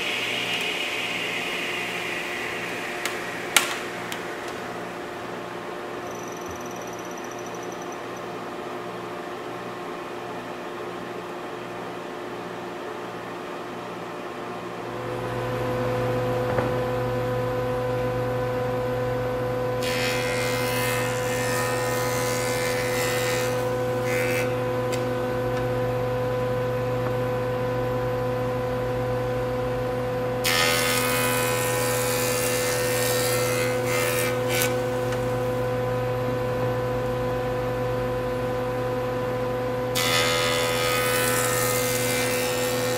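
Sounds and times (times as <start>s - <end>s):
jointer cutting wood: 0.0s - 5.4s, 19.8s - 25.7s, 30.4s - 35.7s, 39.9s - 42.9s.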